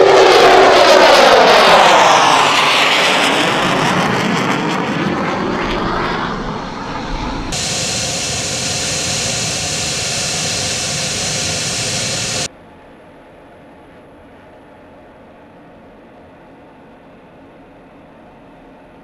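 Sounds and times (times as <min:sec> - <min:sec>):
jet engine noise: 0:00.0 - 0:12.5.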